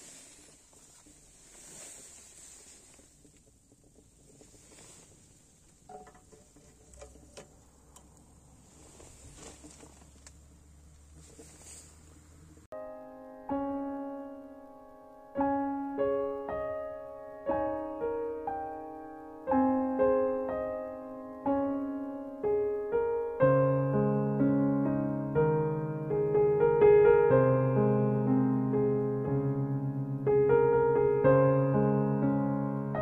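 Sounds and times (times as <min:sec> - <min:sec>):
wood fire crackling: 0:00.0 - 0:12.7
solo piano music: 0:12.2 - 0:33.0.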